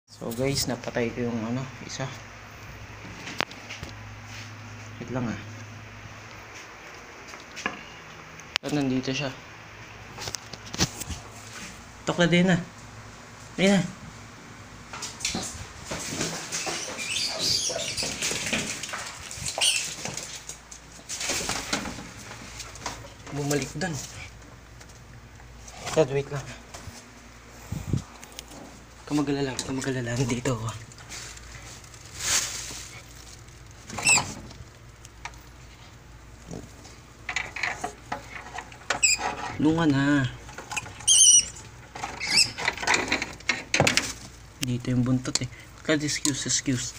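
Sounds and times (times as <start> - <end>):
dog scuffling through clutter: 15.0 - 27.3, 28.6 - 34.7
high-pitched squeaks: 16.6 - 18.5, 19.4 - 20.0, 39.0 - 39.4, 40.7 - 42.6.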